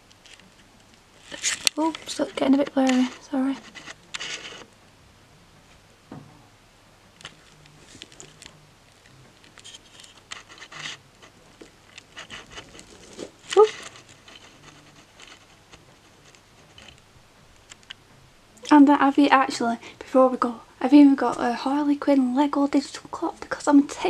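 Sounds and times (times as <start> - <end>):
rustling and handling noises: 0.0 - 4.8, 7.1 - 19.8.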